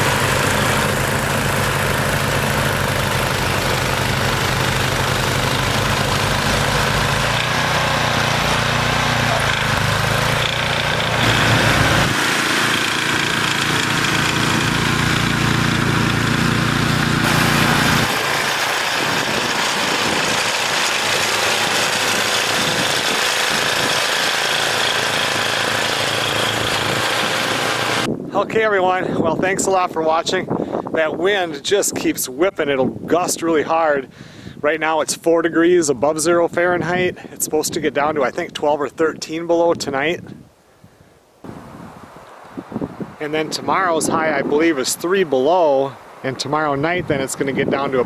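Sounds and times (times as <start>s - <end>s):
snow blower engine running: 0.0s - 28.1s.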